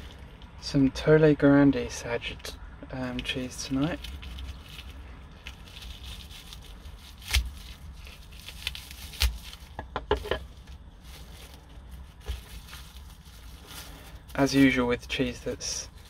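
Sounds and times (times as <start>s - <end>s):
plastic wrap crinkling and tearing: 3.8s - 14.8s.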